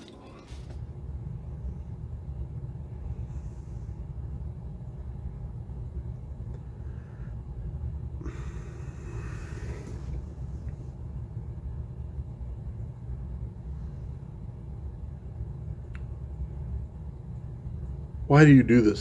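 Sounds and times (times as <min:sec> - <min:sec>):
steady low rumble: 0:00.0 - 0:19.0
breathy rush of hiss: 0:08.2 - 0:10.6.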